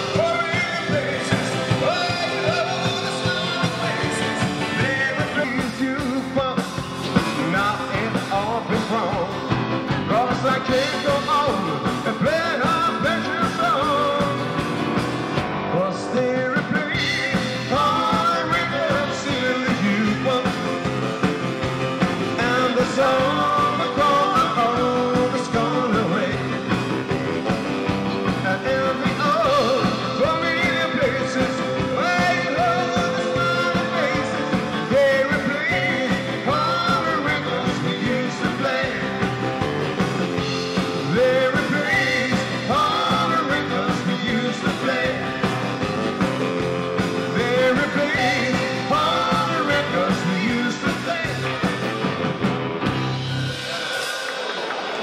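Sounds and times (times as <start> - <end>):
lead vocal singing: 0.0 - 15.0, 15.6 - 52.4
band playing rock and roll: 0.0 - 55.0.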